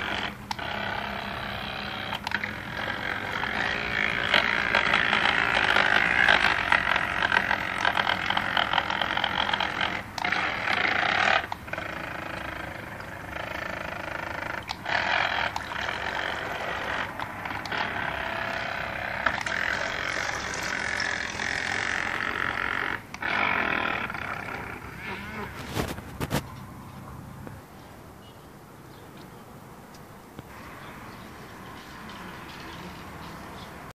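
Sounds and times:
small motor running: 0:00.0 - 0:26.1.

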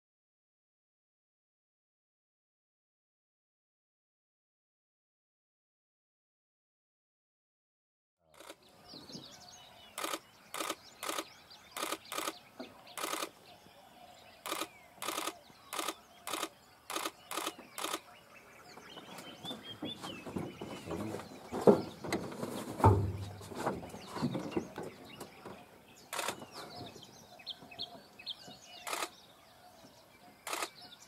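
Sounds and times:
birds chirping: 0:08.2 - 0:31.0
camera shutter clicks: 0:10.0 - 0:13.3, 0:14.4 - 0:18.1, 0:26.1 - 0:26.4, 0:28.8 - 0:29.2, 0:30.4 - 0:30.8
dull thumps: 0:19.5 - 0:25.0.

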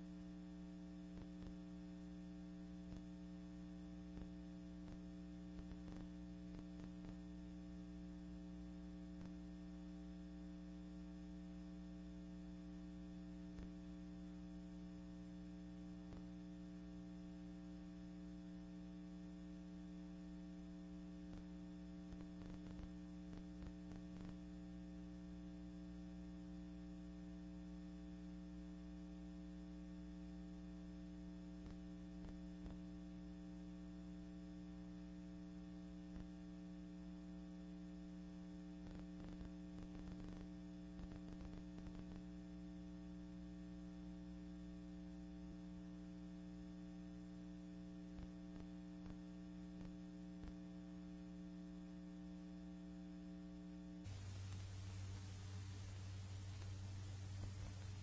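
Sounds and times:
low electrical hum: 0:00.0 - 0:58.0
faint hiss: 0:54.0 - 0:58.0
faint clicks: 0:54.1 - 0:58.0.

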